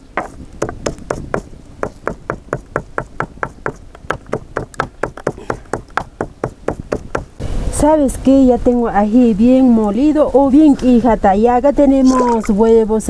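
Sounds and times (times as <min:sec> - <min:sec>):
stone pounding in stone mortar: 0:00.2 - 0:07.3.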